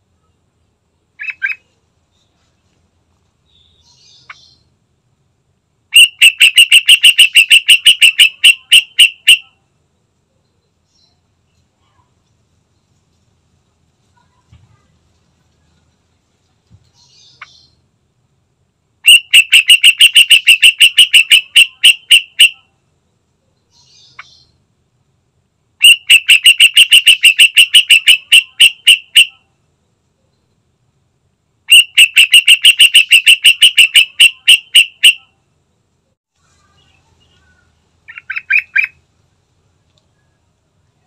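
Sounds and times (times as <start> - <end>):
bulbul calling sharp notes: 5.9 - 9.6, 19.0 - 22.7, 25.8 - 29.4, 31.7 - 35.3.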